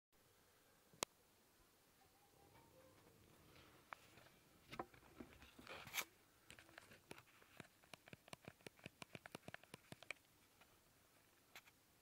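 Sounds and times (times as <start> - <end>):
small sharp clicks: 6.5 - 10.3.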